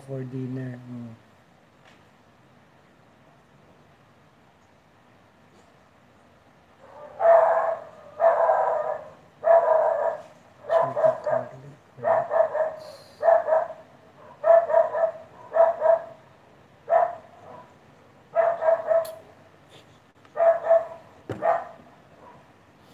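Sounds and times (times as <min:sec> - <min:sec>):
dog barking loudly: 0:06.8 - 0:19.2, 0:20.3 - 0:22.5.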